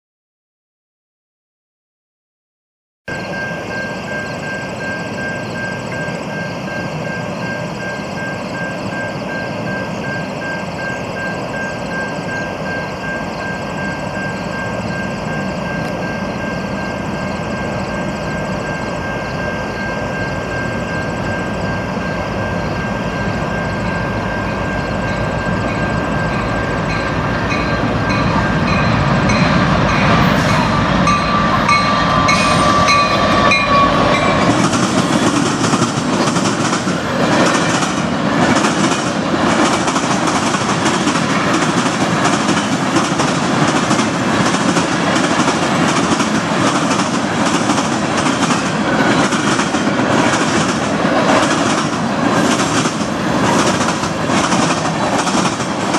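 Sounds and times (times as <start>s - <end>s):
level crossing bells ringing: 3.1s - 34.6s
diesel locomotives passing: 3.1s - 55.9s
train wheels clacking over rail joints: 25.7s - 55.9s.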